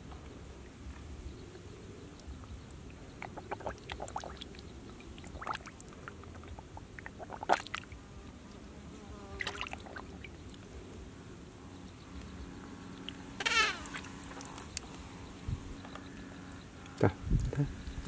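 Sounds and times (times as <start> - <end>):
fish splashing in water: 3.2 - 8.0, 9.4 - 10.4.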